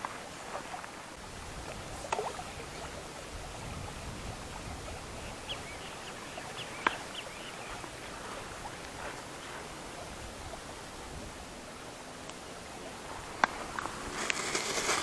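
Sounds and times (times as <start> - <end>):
steady hiss: 0.0 - 15.0
faint bird chirps: 2.3 - 8.8.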